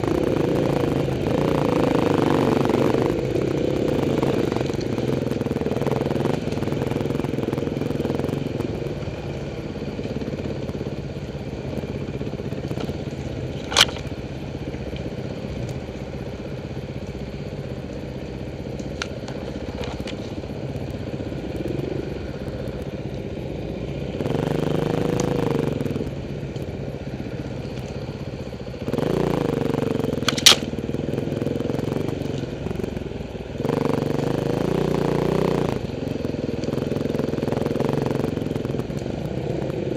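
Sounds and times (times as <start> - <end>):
dirt bike engines running: 0.0 - 39.9.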